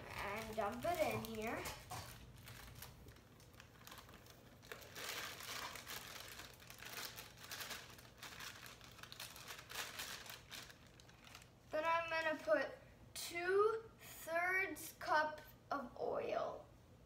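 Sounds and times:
plastic bag crinkling: 0.0s - 12.5s.

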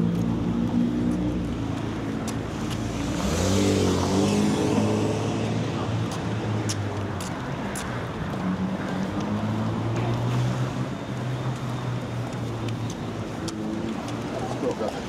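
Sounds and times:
car accelerating past: 2.9s - 6.0s.

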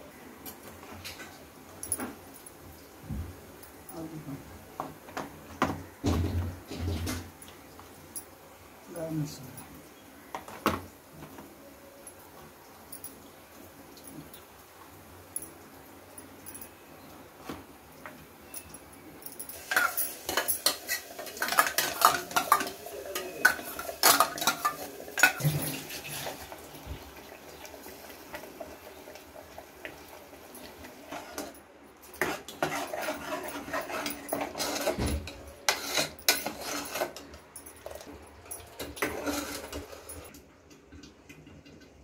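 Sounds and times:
ladle scraping metal pot: 19.6s - 26.5s, 31.0s - 31.6s, 32.2s - 40.3s.

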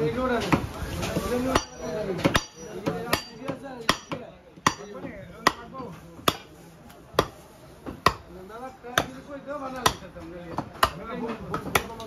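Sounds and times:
cleaver chopping on wooden block: 7.2s - 8.2s, 9.8s - 12.0s.

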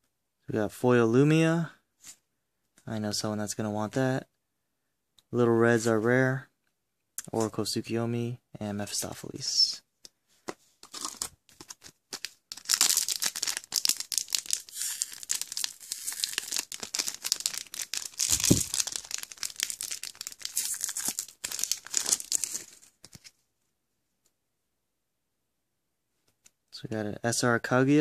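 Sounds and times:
wrapper crinkling and tearing: 10.8s - 23.3s.

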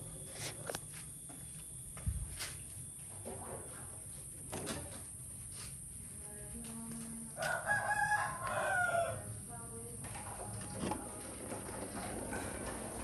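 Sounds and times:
rooster crowing: 7.4s - 9.3s.

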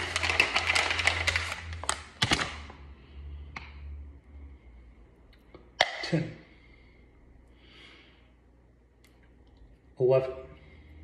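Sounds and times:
paper bag crinkling: 0.0s - 2.7s.

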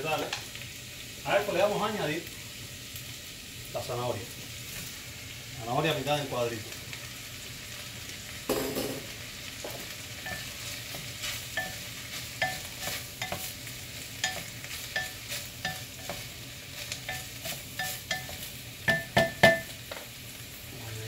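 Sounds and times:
vegetables sizzling in oil: 0.0s - 21.0s
wooden spoon stirring vegetables: 9.6s - 20.2s.

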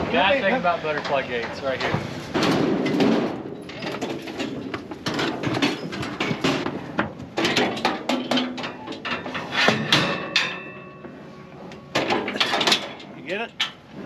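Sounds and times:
metal trailer bangs and rattles: 0.0s - 14.0s
loud metal gate clang: 7.4s - 13.8s.

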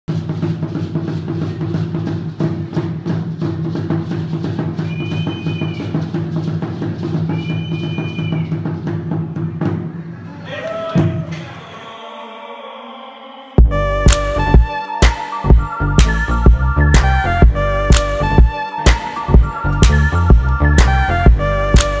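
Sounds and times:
high whistling tone: 4.8s - 6.0s, 7.3s - 8.6s, 14.3s - 17.6s
dense drumbeat: 13.6s - 14.7s, 15.5s - 22.0s.

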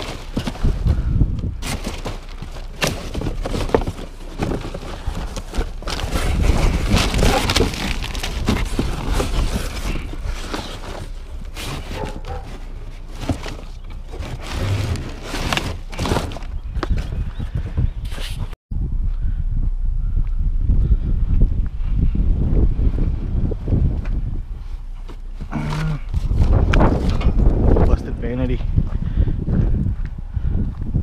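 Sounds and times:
cardboard rustling and knocking: 0.0s - 17.8s.

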